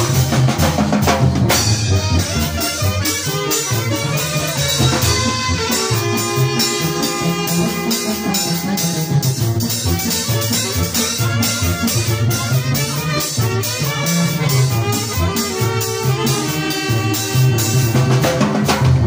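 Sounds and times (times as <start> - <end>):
pulsing bass line: 0.0 - 18.3
horns holding notes: 0.0 - 18.6
steady percussion beat: 0.0 - 19.0.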